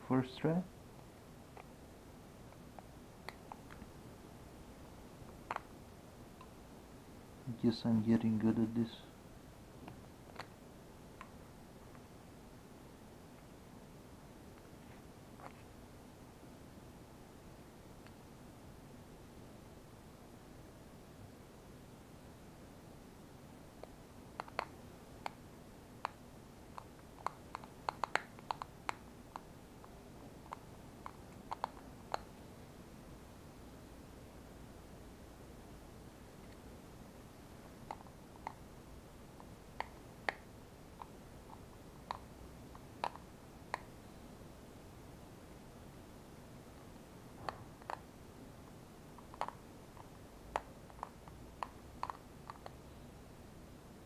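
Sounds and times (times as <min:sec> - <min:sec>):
plastic clicks and taps: 0:24.4 - 0:25.4, 0:26.8 - 0:29.0, 0:49.2 - 0:52.7.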